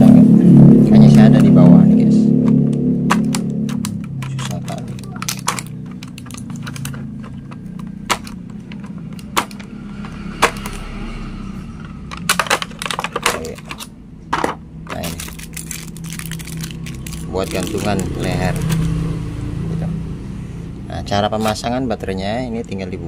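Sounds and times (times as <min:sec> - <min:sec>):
steady low hum: 0:00.0 - 0:23.0
hands rummaging in plastic tray: 0:03.1 - 0:09.6, 0:12.1 - 0:18.9.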